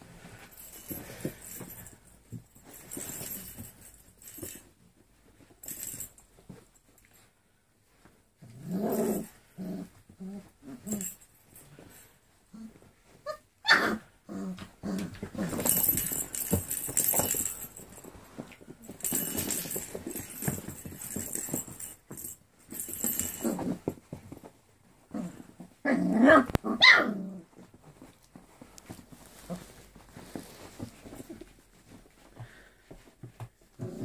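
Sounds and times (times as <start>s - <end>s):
toys and blanket rustling: 0.0s - 34.0s
puppy yelp or bark: 13.2s - 14.1s, 26.2s - 27.2s.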